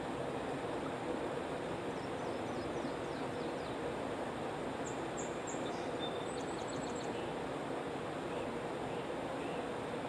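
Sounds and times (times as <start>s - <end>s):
outdoor background hiss: 0.0s - 10.0s
small birds chirping: 4.8s - 7.4s.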